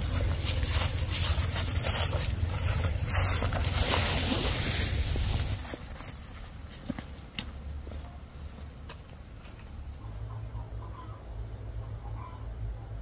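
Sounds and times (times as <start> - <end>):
wind rumbling on microphone: 0.0 - 6.1
rustling plant stalks: 0.0 - 7.0.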